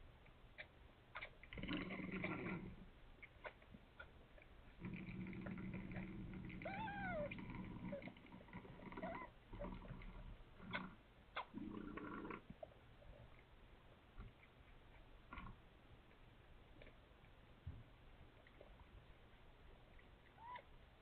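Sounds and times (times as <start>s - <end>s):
cat purring: 0.6s - 13.4s
cat mewing: 6.6s - 7.4s.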